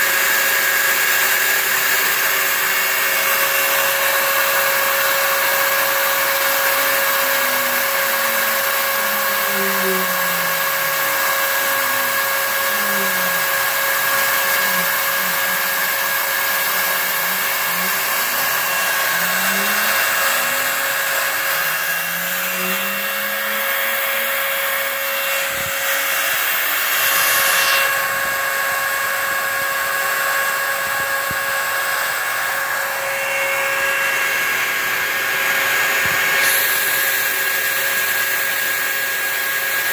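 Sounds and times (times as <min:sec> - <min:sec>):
spindle motor whine: 0:00.0 - 0:39.9
vacuum running: 0:00.0 - 0:39.9
stepper motors gliding in pitch: 0:01.8 - 0:31.4.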